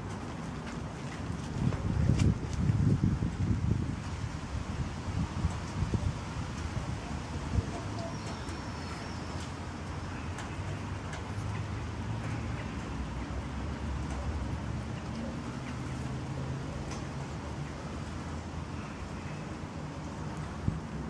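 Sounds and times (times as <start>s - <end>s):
road traffic rumble: 0.0s - 21.0s
faint light ticks: 9.3s - 15.9s, 16.8s - 17.2s.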